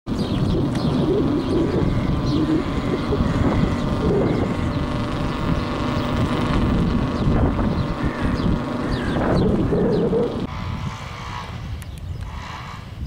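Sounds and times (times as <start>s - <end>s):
birds chirping faintly: 0.1s - 10.5s
pigeons cooing: 0.1s - 10.5s
wind rumble on microphone: 0.1s - 13.0s.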